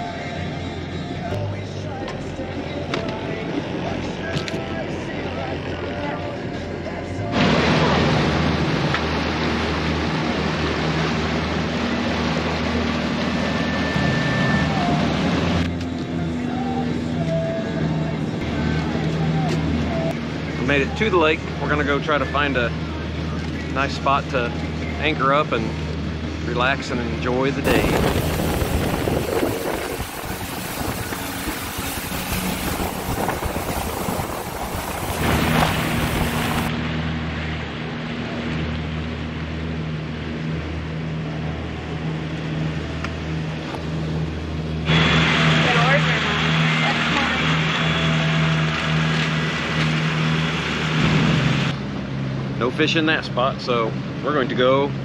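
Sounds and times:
boat engine drone: 0:00.0 - 0:55.0
churning water rushing: 0:00.0 - 0:55.0
rushing water and spray: 0:07.3 - 0:15.8, 0:27.6 - 0:37.2, 0:44.8 - 0:51.8.

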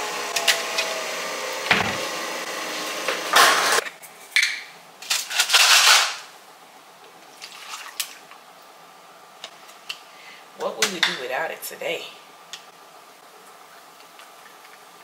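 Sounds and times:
coffee machine brewing hum: 0:00.0 - 0:03.8
clattering kitchen noises: 0:03.0 - 0:06.3.

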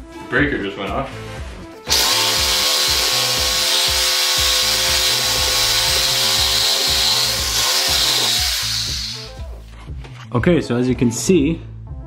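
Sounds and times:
reciprocating saw cutting metal: 0:01.9 - 0:09.4.

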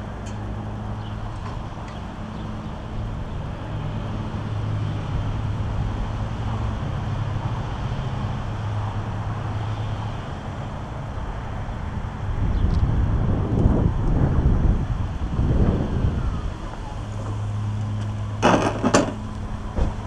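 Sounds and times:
tyre and wind noise: 0:11.6 - 0:20.0.

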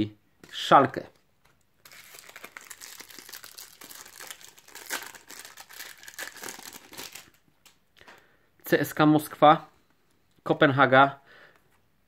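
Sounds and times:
foil wrapper crinkling: 0:01.8 - 0:07.4.

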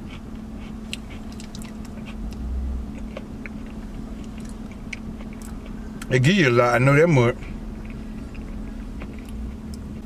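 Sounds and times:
person chewing food: 0:00.0 - 0:06.1, 0:07.4 - 0:10.0
steady low hum: 0:00.0 - 0:10.0
lip smacks: 0:00.6 - 0:06.1.

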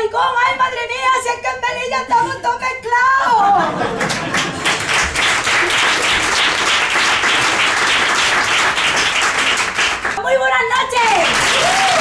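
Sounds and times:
audience applauding: 0:03.9 - 0:10.2, 0:11.0 - 0:12.0.

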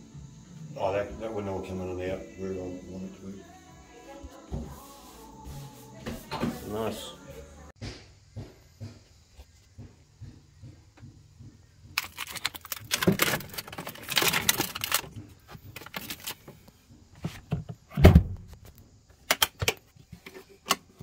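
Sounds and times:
plastic bottles crinkling and knocking: 0:11.8 - 0:17.9.

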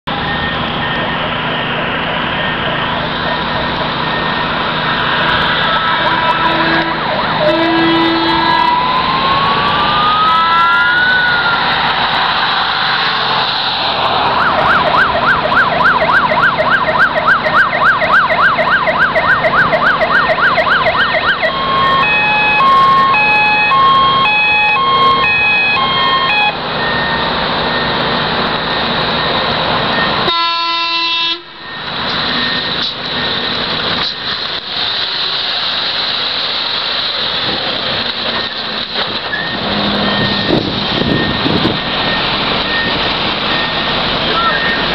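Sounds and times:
truck engine and road noise: 0:00.0 - 0:44.9
fire truck siren: 0:00.1 - 0:36.0, 0:36.6 - 0:44.9
vehicle horn: 0:05.8 - 0:08.7, 0:30.2 - 0:31.6.

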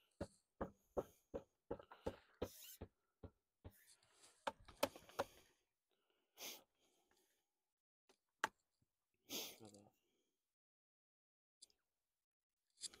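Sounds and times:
person sniffing: 0:06.4 - 0:06.7, 0:09.3 - 0:09.7.

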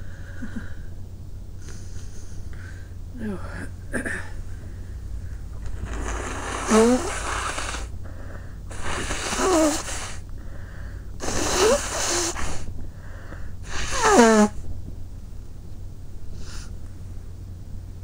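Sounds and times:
soft breaths: 0:01.6 - 0:14.6, 0:16.2 - 0:17.0
person blowing nose forcefully: 0:05.7 - 0:07.9, 0:08.7 - 0:10.2, 0:11.2 - 0:12.7, 0:13.6 - 0:14.6.

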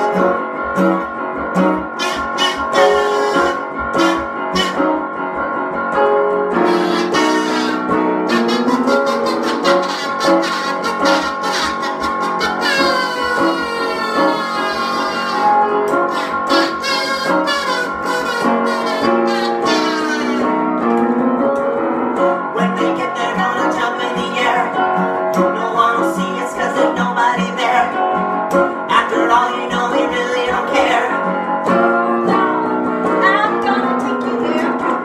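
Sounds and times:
strummed acoustic guitar: 0:00.0 - 0:21.0, 0:21.8 - 0:35.0
kazoo buzzing melody: 0:01.9 - 0:05.0, 0:06.6 - 0:20.6
woman and man singing: 0:22.6 - 0:24.8, 0:25.4 - 0:28.0, 0:28.9 - 0:31.3.

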